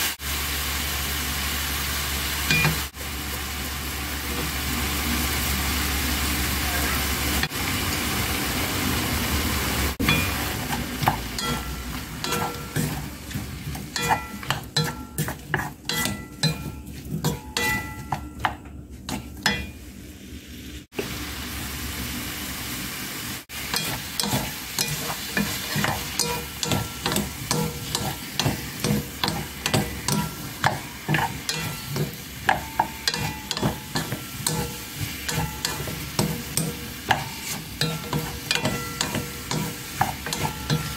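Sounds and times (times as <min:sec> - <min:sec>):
light sizzle: 0:00.0 - 0:40.9
wooden spatula scraping a pan: 0:10.0 - 0:19.7, 0:23.6 - 0:40.9.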